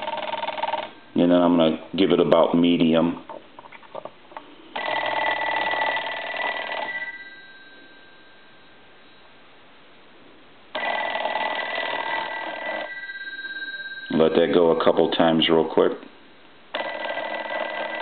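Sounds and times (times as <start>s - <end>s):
telephone bell ringing: 0.0s - 1.2s, 4.8s - 9.2s, 10.8s - 15.6s, 16.7s - 18.0s.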